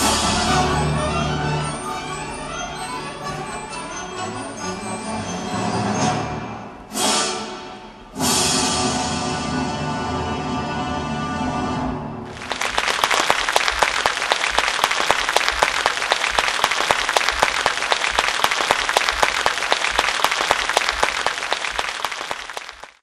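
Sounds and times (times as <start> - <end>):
audience applauding: 12.3 - 23.0.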